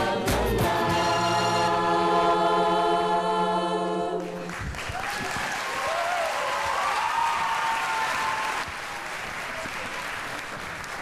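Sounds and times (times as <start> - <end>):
audience applauding: 4.2 - 11.0.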